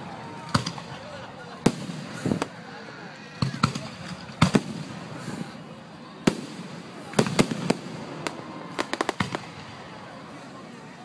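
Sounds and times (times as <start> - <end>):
small firework pops: 1.6 - 2.6, 3.4 - 5.0, 6.2 - 9.8
fireworks bursting: 1.6 - 2.7, 3.4 - 5.6, 6.2 - 10.4.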